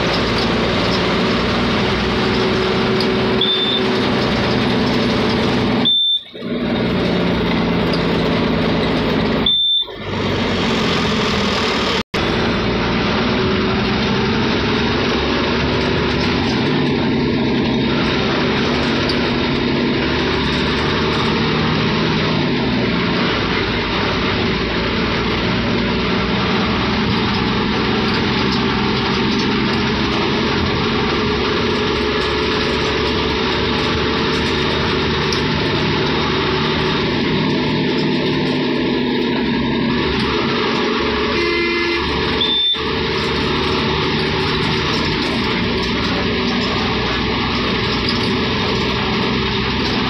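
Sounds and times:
vehicle engine and road noise: 0:00.0 - 0:50.0
high beeps: 0:03.4 - 0:03.9, 0:05.8 - 0:06.4, 0:09.4 - 0:10.0, 0:42.4 - 0:42.8.

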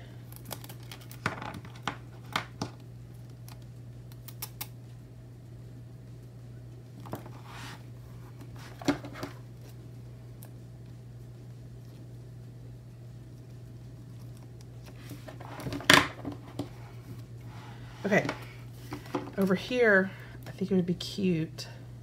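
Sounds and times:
low steady hum: 0:00.0 - 0:22.0
paper and tape rubbing: 0:07.2 - 0:07.9.

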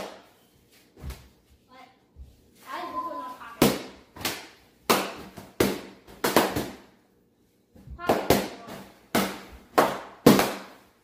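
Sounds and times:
balloons popping: 0:03.6 - 0:06.9, 0:08.0 - 0:10.9.

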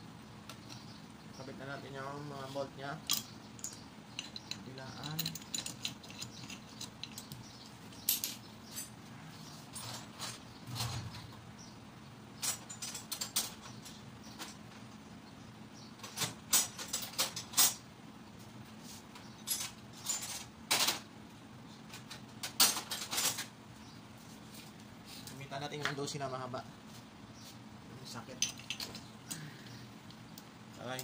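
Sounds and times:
metal tools clinking: 0:03.0 - 0:09.0, 0:09.6 - 0:11.1, 0:12.4 - 0:14.0, 0:19.3 - 0:21.0, 0:28.1 - 0:29.5.

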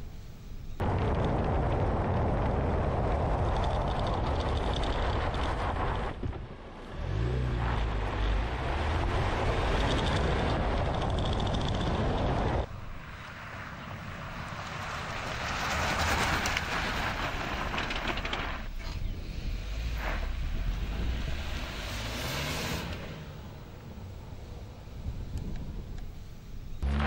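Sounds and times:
engine hum: 0:00.0 - 0:27.0
wind noise: 0:00.6 - 0:23.2, 0:24.2 - 0:26.9
tyres rushing on gravel: 0:14.6 - 0:18.7.

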